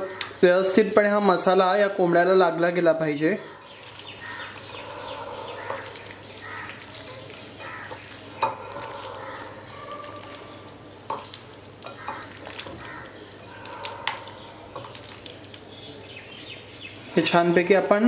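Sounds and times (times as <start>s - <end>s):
hands squelching meat in marinade: 3.5s - 17.1s.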